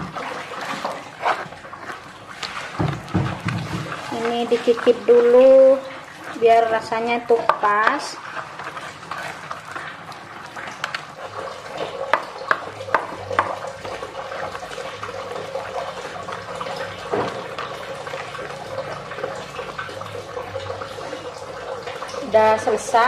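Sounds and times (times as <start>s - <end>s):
pestle grinding wet paste: 7.4s - 18.1s.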